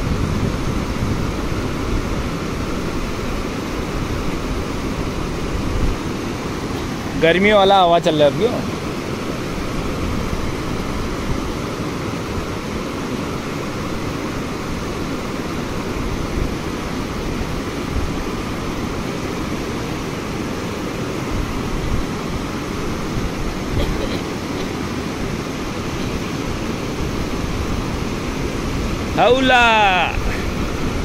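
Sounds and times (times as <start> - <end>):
wind buffeting microphone: 0.0 - 19.6, 20.8 - 24.2, 24.8 - 31.0
river water rushing: 0.0 - 31.0.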